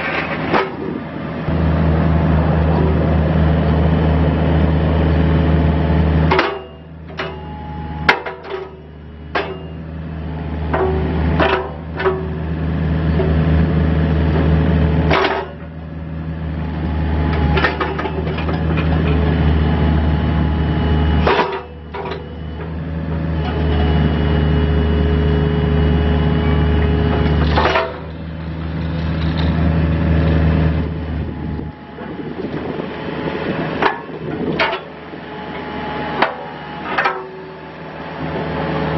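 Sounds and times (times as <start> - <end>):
diesel engine running: 0.0 - 38.9
hydraulic whine: 0.0 - 38.9
metallic clanks of bucket linkage: 6.3 - 7.5, 21.2 - 22.4.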